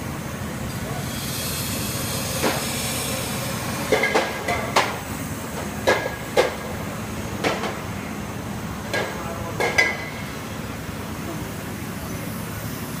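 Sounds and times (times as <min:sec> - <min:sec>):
machine humming: 0:00.0 - 0:08.9.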